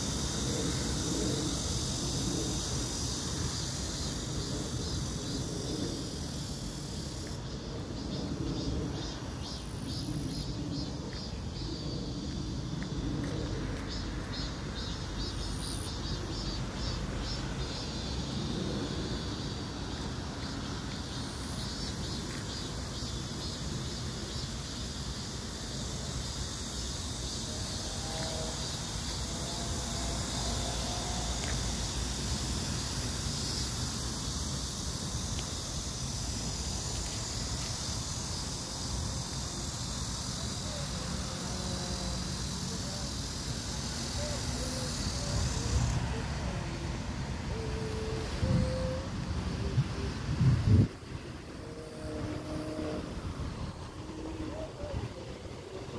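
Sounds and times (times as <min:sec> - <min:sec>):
insects trilling and buzzing: 0:00.0 - 0:55.9
wind buffeting microphone: 0:45.5 - 0:55.9.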